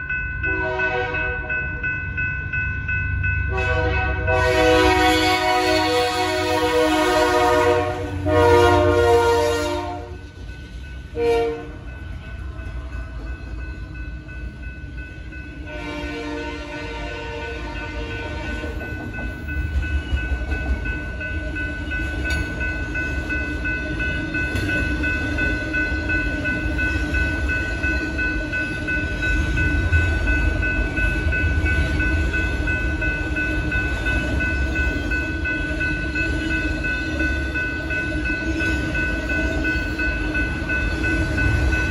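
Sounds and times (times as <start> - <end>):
freight train rumbling past: 0.0 - 41.9
locomotive air horn: 0.5 - 1.4, 3.5 - 10.2, 11.2 - 11.8, 15.7 - 18.7
steady high tones: 18.6 - 41.9.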